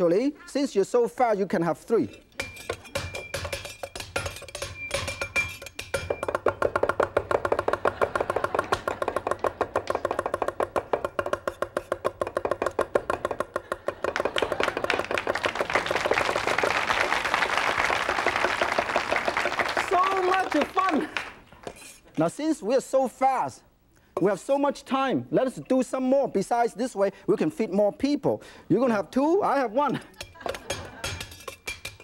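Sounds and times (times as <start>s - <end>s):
cleavers chopping on wooden board: 2.4s - 15.1s
audience applause: 14.0s - 21.4s.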